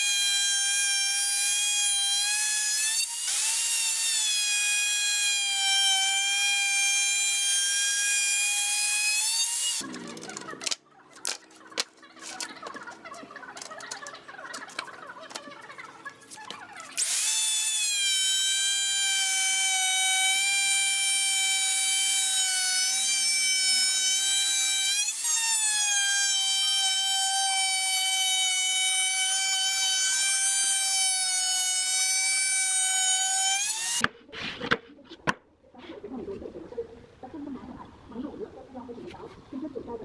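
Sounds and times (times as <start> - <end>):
wood router whining: 0.0 - 10.8, 17.0 - 34.1.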